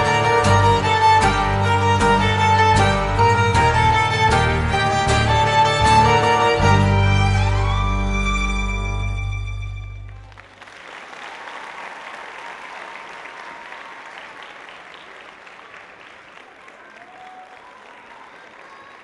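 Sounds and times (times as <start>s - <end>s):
audience applause: 10.0s - 19.0s.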